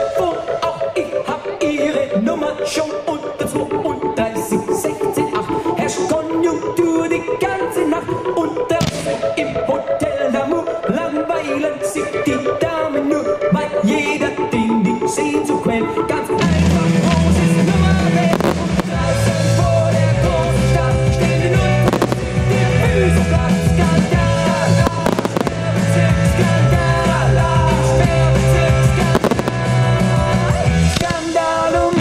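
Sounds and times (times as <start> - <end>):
loud rock music with heavy bass: 16.4 - 32.0
fireworks bangs: 18.1 - 19.8, 21.8 - 22.9, 24.6 - 26.3, 29.0 - 32.0.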